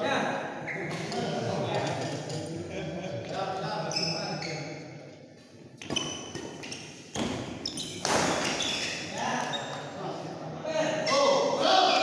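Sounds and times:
voices in a hall: 0.0 - 12.0
shoes squeaking on court floor: 3.9 - 4.8, 5.8 - 9.9.

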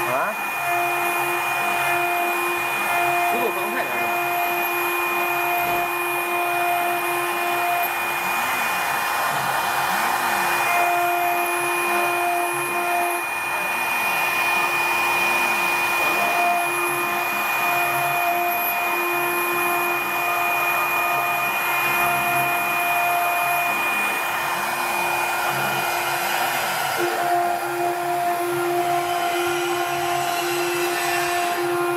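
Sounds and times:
engraving spindle whine: 0.0 - 31.9.

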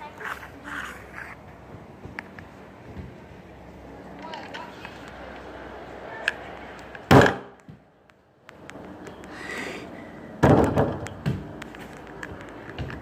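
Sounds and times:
loud thumps: 7.1 - 7.6, 10.4 - 11.5.

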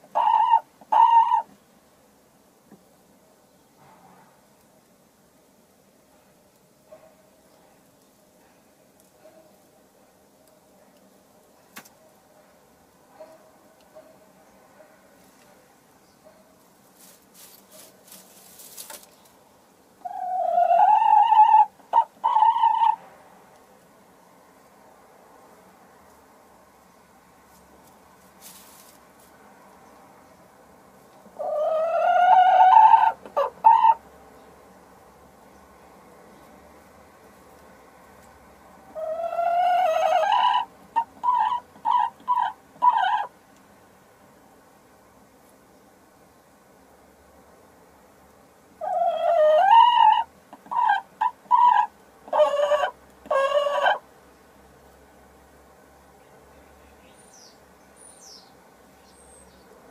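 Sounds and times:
straw rustling: 16.3 - 19.5, 27.4 - 29.5.

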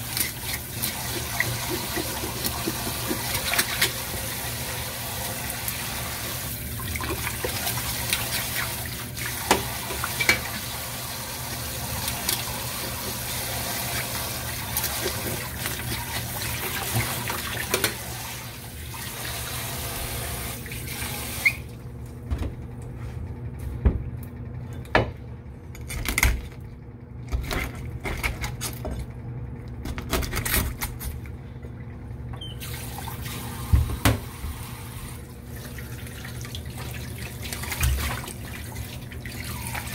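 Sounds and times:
tap water running into sink: 0.0 - 21.7, 32.6 - 39.9.

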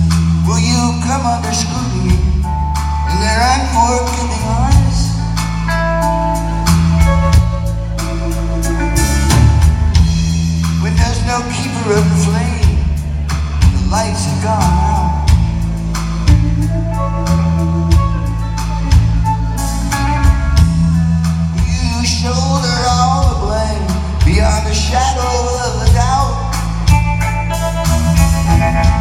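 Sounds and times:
bass guitar: 0.0 - 29.0
steady drum beat: 0.0 - 29.0
electric lead guitar bending notes: 2.5 - 10.6, 14.5 - 21.1, 26.3 - 29.0.

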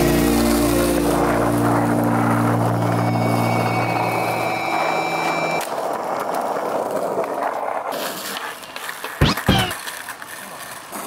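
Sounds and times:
sustained low tone: 0.0 - 5.6
skateboard wheels rolling on concrete: 0.0 - 11.0.

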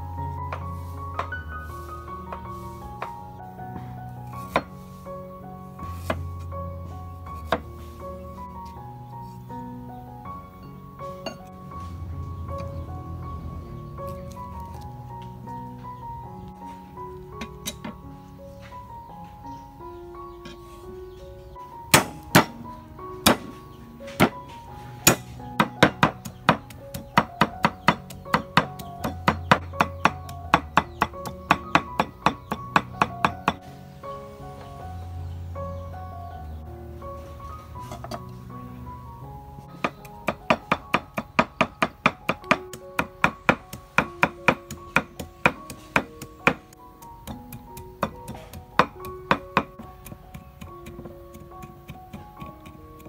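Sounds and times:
light music with plucked notes: 0.0 - 53.0
cleaver chopping on wooden board: 22.0 - 22.5, 23.3 - 24.4, 25.1 - 33.6.

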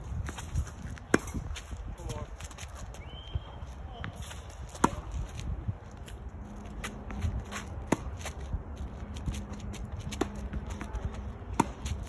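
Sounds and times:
sneakers scuffing on court: 0.0 - 12.0
tennis ball hitting racket: 0.2 - 1.7, 4.7 - 5.4, 6.8 - 8.5, 10.0 - 12.0
tennis ball bouncing on court: 0.3 - 1.4, 4.7 - 5.2, 6.9 - 8.4, 10.0 - 12.0.

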